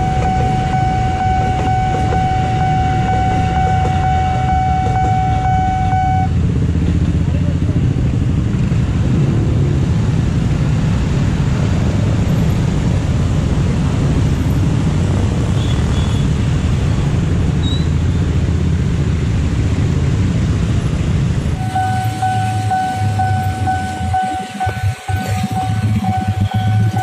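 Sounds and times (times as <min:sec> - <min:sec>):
crossing warning alarm: 0:00.0 - 0:06.4, 0:21.6 - 0:27.0
heavy road traffic: 0:00.0 - 0:27.0.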